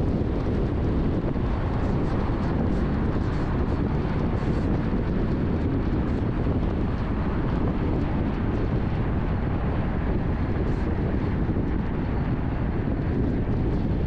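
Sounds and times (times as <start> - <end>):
car road and wind noise: 0.0 - 14.0.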